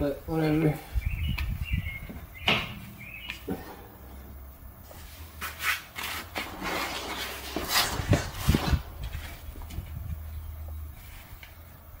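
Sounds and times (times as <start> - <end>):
metal parts scraping and rubbing: 5.4 - 9.4.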